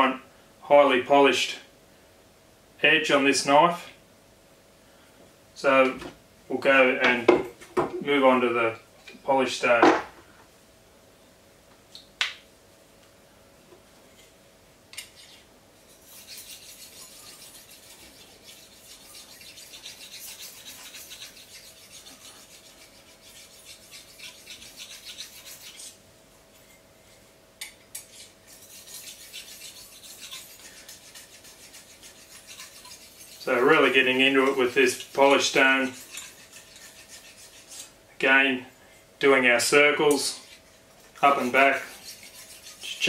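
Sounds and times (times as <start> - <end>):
stone scraping knife blade: 15.0 - 26.0, 27.9 - 38.0, 40.1 - 43.0.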